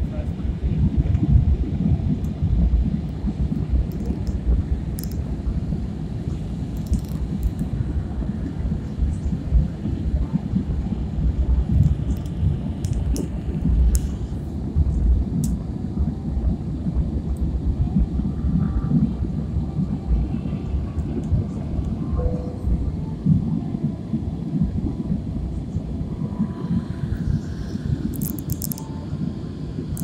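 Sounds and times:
airplane cabin engine rumble: 0.0 - 30.0
faint clicks: 3.9 - 4.4, 5.0 - 5.2, 28.1 - 28.9.

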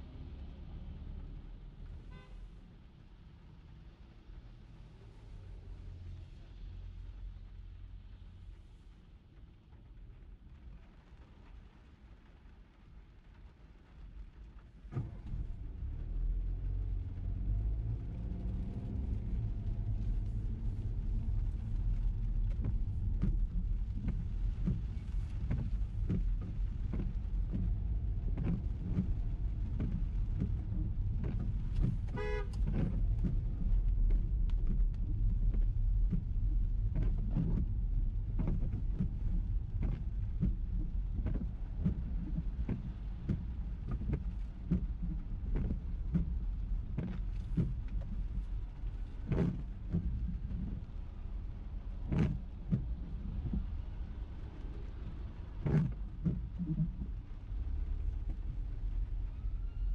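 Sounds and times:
car engine and road rumble: 0.0 - 59.9
rain ticking on car: 0.0 - 59.9
car horn toot: 32.2 - 32.6.

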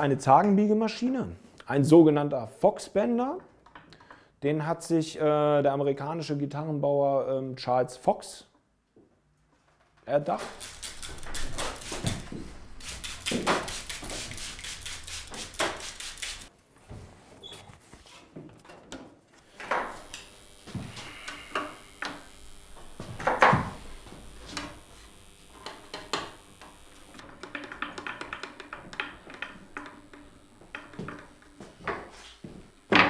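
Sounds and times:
wooden strips clicking and rattling: 9.6 - 16.5, 25.7 - 32.1
faint high whine: 19.6 - 27.2.

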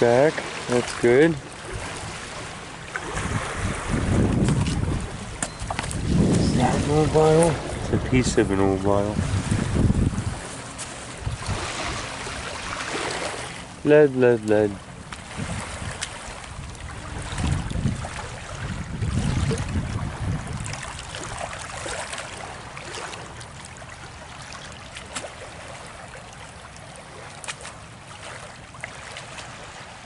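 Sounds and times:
faint wash of shallow water: 0.0 - 30.0
wind rumbling on microphone: 0.8 - 13.6, 14.8 - 23.0
footsteps on wet shingle: 4.1 - 6.8.

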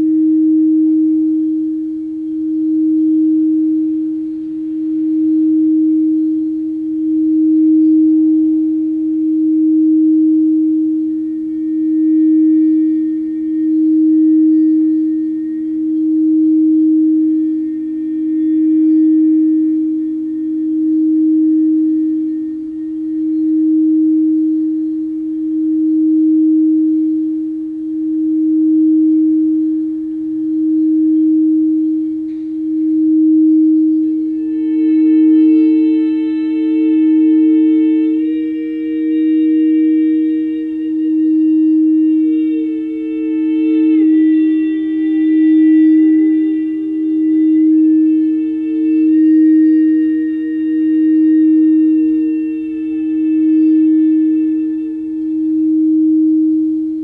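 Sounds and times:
singing bowl tone: 0.0 - 57.0.

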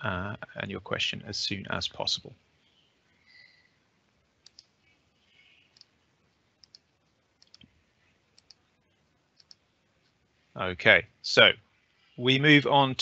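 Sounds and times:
computer mouse clicks: 4.4 - 4.8, 5.7 - 6.0, 6.6 - 7.7, 8.3 - 8.6, 9.4 - 9.7.

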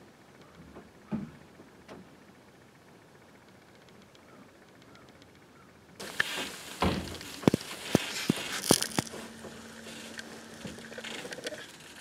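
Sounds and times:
clothing rustling: 6.0 - 12.0
sharp knocks: 6.8 - 8.1.

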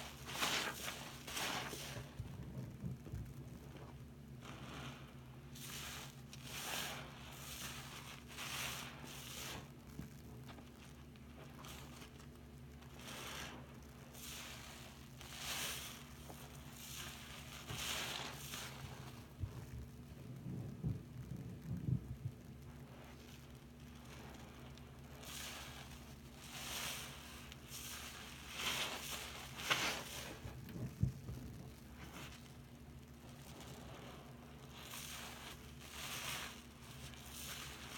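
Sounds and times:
sponge squelching in soapy water: 0.0 - 37.9.

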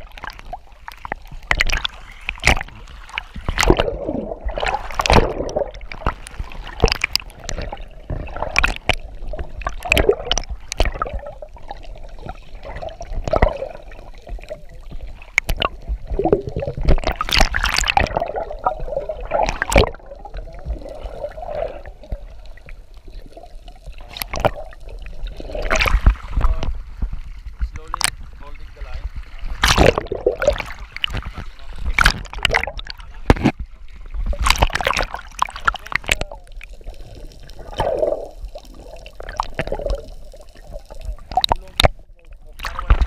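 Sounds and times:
underwater gurgling and bubbling: 0.0 - 43.0.

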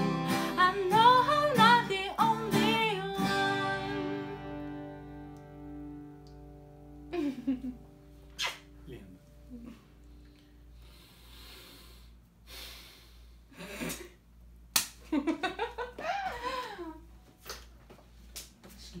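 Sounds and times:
acoustic guitar chord: 0.0 - 8.2
breathy exhales: 10.7 - 13.8.

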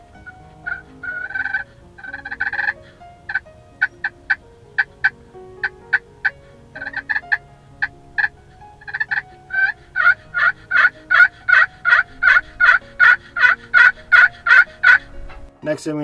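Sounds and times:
turkey pot call yelps: 0.7 - 4.4, 8.9 - 15.1
turkey call clucks: 8.9 - 15.1.

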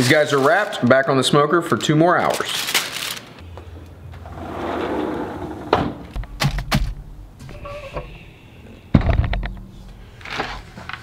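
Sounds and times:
sharp knocks and thuds: 8.9 - 9.7.

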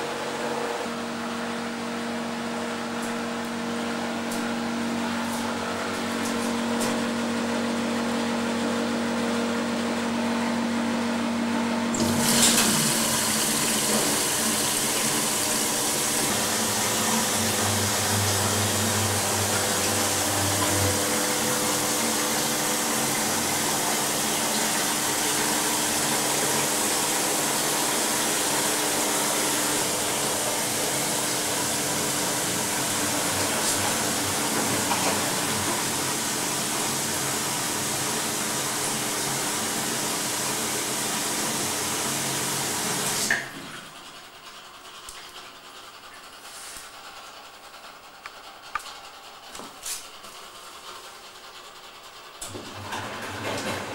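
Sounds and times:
washing machine motor hum: 0.0 - 53.9
water rushing through machine: 11.9 - 44.2.

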